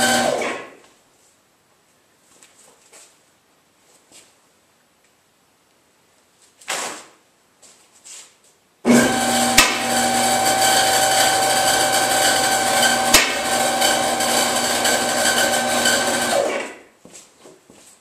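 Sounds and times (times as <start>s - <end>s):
hydraulic lift motor whining: 0.0s - 0.6s, 8.9s - 16.7s.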